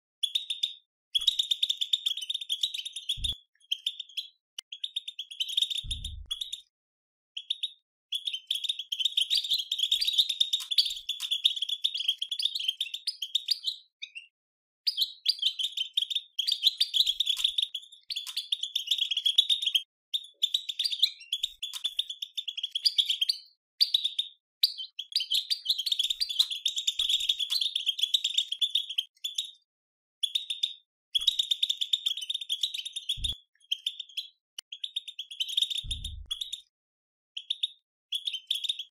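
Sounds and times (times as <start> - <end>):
low thump: 5.9 - 6.3, 35.9 - 36.3.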